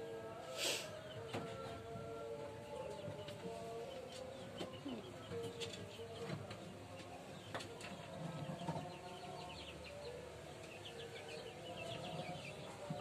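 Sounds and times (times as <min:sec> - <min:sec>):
birds chirping: 0:02.7 - 0:13.0.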